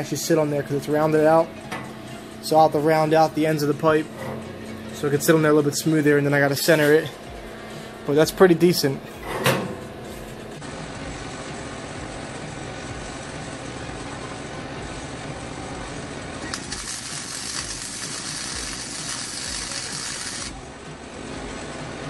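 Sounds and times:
steady background noise: 0.0s - 22.0s
arc welder crackling hiss: 15.8s - 20.6s.

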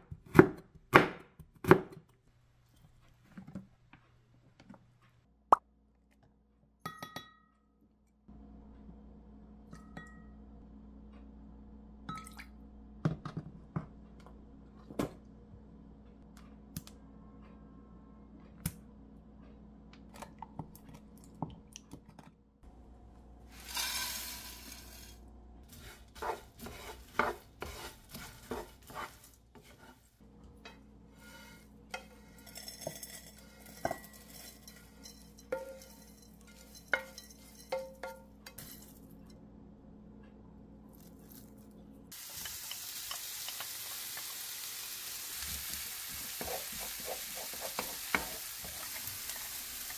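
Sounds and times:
steady low hum: 24.9s - 42.2s
spatula scraping pan: 25.7s - 39.0s, 46.1s - 49.9s.

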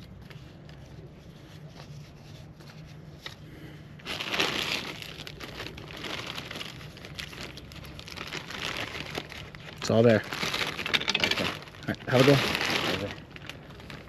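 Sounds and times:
plastic or fabric crinkling: 4.0s - 14.0s.

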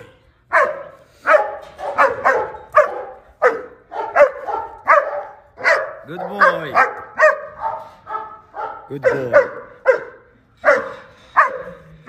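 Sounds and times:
dog barking: 0.0s - 12.0s.

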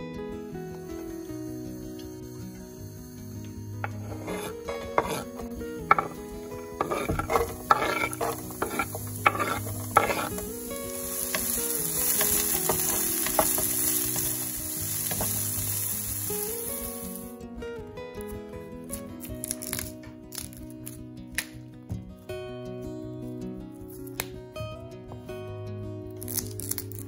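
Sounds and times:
utensil scraping a pan: 3.8s - 15.8s
food sizzling in oil: 3.8s - 17.4s.

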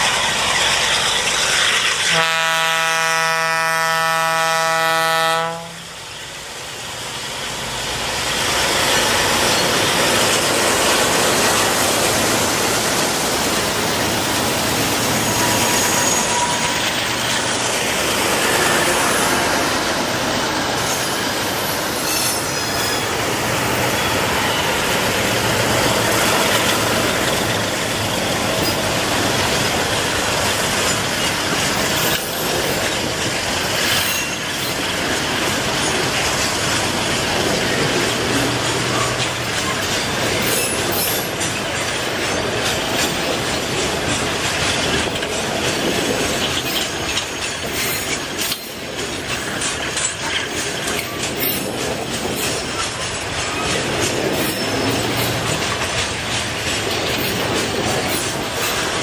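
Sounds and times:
freight train rolling on rails: 0.0s - 59.0s
locomotive horn chord: 2.1s - 5.9s.

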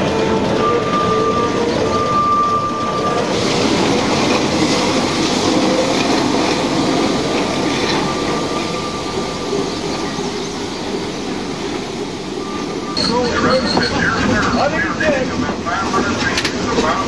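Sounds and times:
steam locomotive running past: 0.0s - 17.0s.

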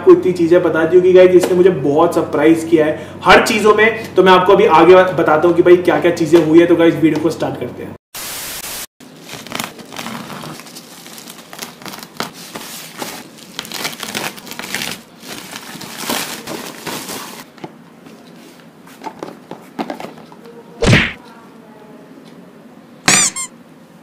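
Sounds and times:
plastic tearing and crinkling: 9.0s - 17.5s
loud thump: 20.8s - 21.2s.

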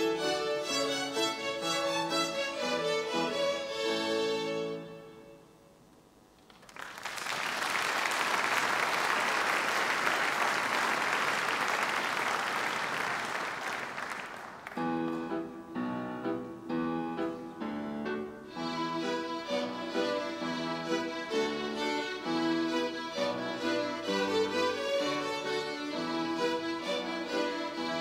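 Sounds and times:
violin ensemble with piano: 0.0s - 5.4s, 14.9s - 28.0s
audience applauding: 6.5s - 14.8s.

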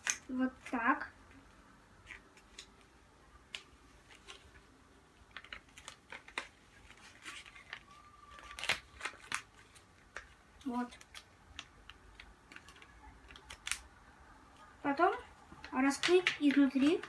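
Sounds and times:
paper rustling and crinkling: 3.5s - 13.8s.

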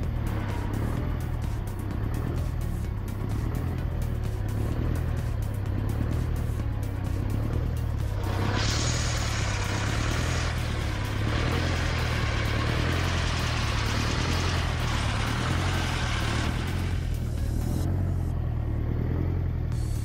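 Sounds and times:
diesel engine droning: 0.0s - 20.0s
hissing rush: 8.2s - 17.1s.

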